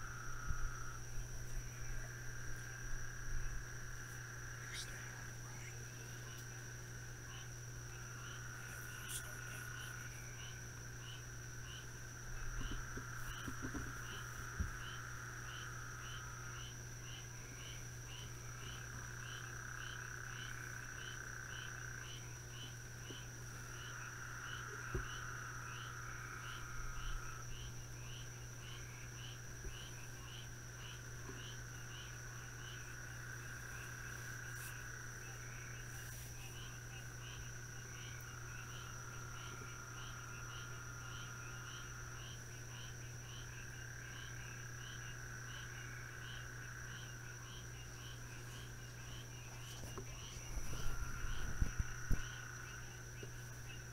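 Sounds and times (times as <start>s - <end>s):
insects and frogs chirping: 0.0s - 53.9s
low steady hum: 0.0s - 53.9s
steady high-pitched buzz: 0.0s - 53.9s
faint knocks: 12.6s - 14.8s.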